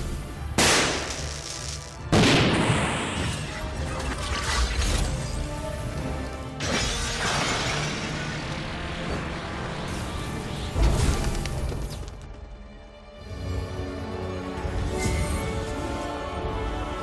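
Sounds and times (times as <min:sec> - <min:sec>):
dramatic film score: 0:00.0 - 0:17.0
crashing shattering effects: 0:06.6 - 0:08.9.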